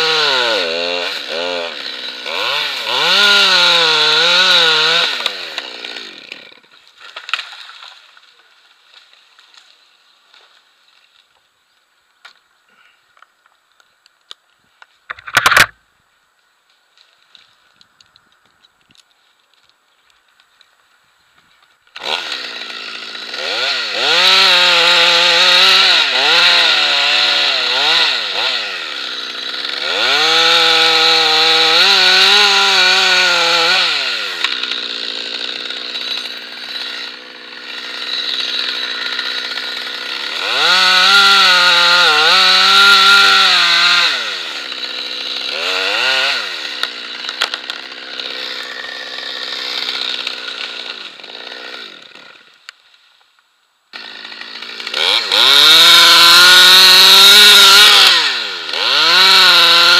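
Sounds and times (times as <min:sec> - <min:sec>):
chainsaw revving and idling: 0:00.0 - 0:08.0, 0:22.0 - 0:52.7, 0:53.9 - 0:59.9.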